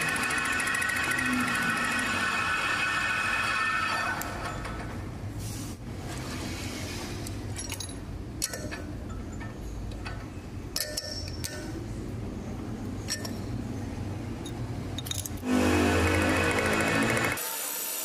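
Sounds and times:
light metallic clinks: 0:13.0 - 0:13.6.

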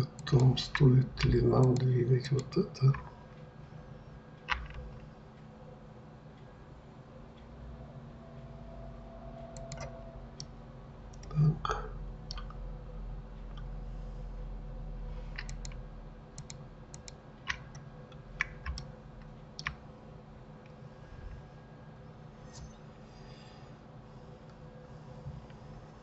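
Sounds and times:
faint steady hum: 0:00.0 - 0:26.0
mouse clicks: 0:09.5 - 0:09.9, 0:15.3 - 0:15.8, 0:16.4 - 0:17.8
keyboard key presses: 0:09.6 - 0:09.9, 0:15.3 - 0:15.8, 0:18.4 - 0:18.9.

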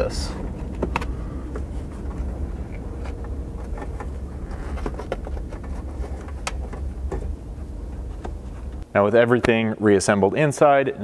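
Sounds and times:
low hum: 0:00.0 - 0:09.1.

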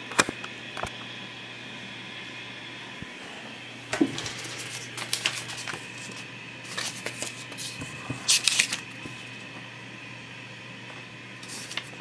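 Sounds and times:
paper rustling and crinkling: 0:04.0 - 0:09.3, 0:11.4 - 0:12.0.

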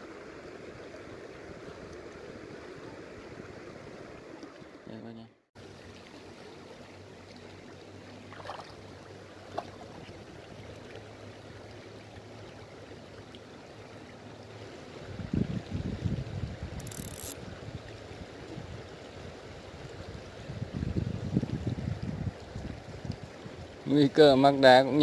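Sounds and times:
stream flowing over stones: 0:00.0 - 0:04.9, 0:05.6 - 0:25.0
wind buffeting microphone: 0:15.0 - 0:18.9, 0:19.9 - 0:23.8.

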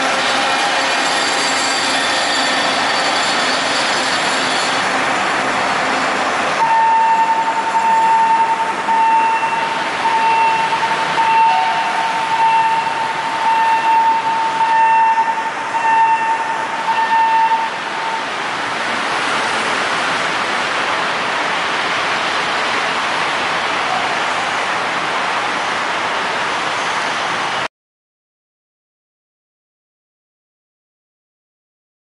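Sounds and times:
rail truck rushing running noise: 0:00.0 - 0:27.7
horn blasts: 0:06.6 - 0:18.3.

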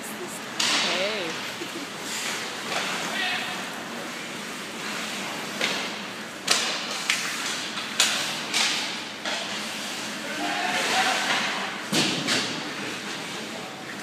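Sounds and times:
hockey sticks and puck clacking: 0:00.5 - 0:01.4, 0:02.0 - 0:14.0
skate blades scraping ice: 0:02.0 - 0:11.6.

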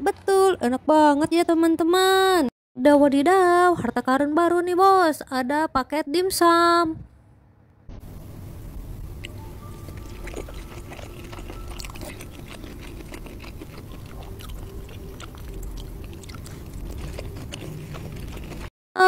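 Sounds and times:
man chewing with wet mouth smacks: 0:09.2 - 0:18.7.

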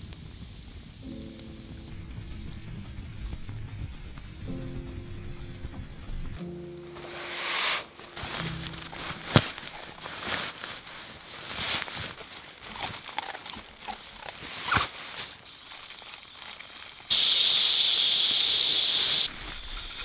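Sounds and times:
air hissing from valve: 0:00.0 - 0:01.2, 0:17.1 - 0:20.0
nylon rustling: 0:06.4 - 0:16.7.

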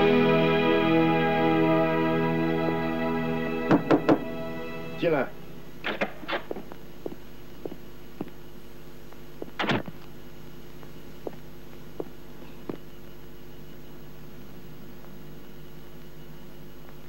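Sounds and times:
steady low hum: 0:00.0 - 0:17.0
footsteps tapping: 0:03.7 - 0:04.3, 0:06.0 - 0:08.4, 0:09.1 - 0:10.1, 0:10.7 - 0:12.9.

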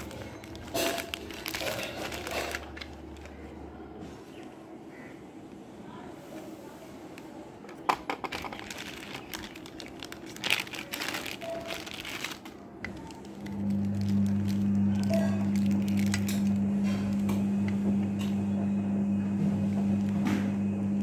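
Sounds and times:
plastic bag crinkling: 0:00.0 - 0:03.8, 0:08.2 - 0:17.2
steady low hum: 0:08.6 - 0:21.0.

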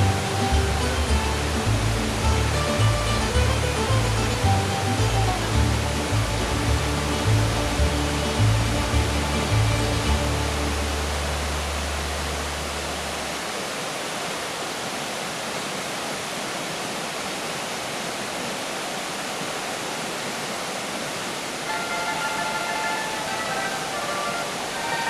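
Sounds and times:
background music: 0:00.0 - 0:12.3, 0:21.7 - 0:25.0
river rushing over rocks: 0:00.0 - 0:25.0.

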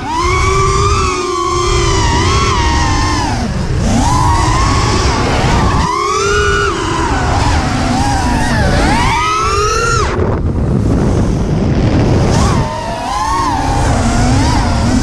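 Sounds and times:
drone motors whining: 0:00.0 - 0:15.0
wind rushing on microphone: 0:00.0 - 0:15.0.

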